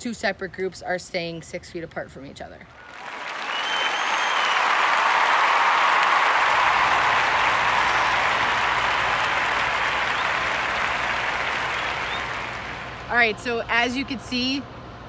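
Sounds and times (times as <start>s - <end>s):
crowd applauding: 2.8s - 13.2s.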